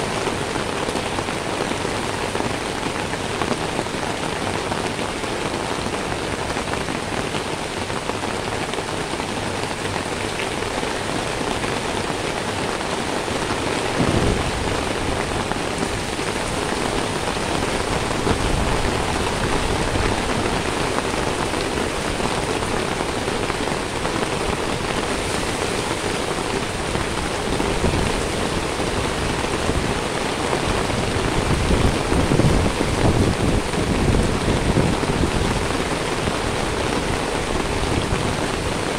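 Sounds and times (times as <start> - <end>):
rain on wet pavement: 0.0 - 38.9
gusty low rumbling: 13.8 - 20.1
low thump: 14.0 - 14.8.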